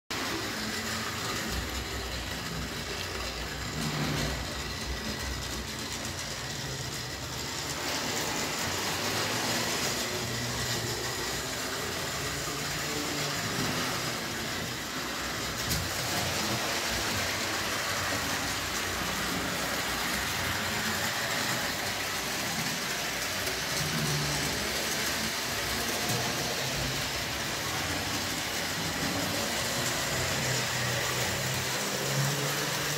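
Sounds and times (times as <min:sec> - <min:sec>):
model train motor whirring: 0:00.2 - 0:32.9.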